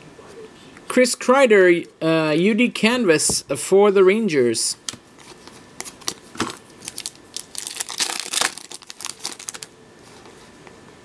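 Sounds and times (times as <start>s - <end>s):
foil wrapper crinkling: 5.2s - 9.7s.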